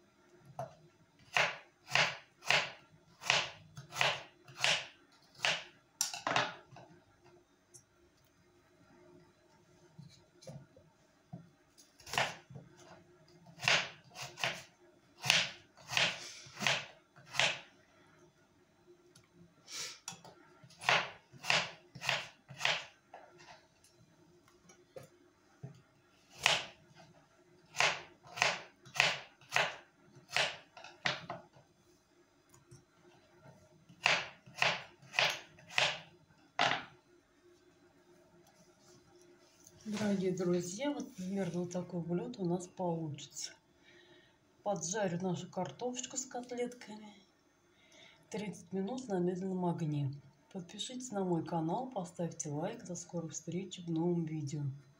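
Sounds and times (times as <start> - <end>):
knife chopping on wooden board: 1.3 - 5.7, 15.2 - 17.6, 20.8 - 22.9, 27.8 - 31.4, 34.0 - 36.0.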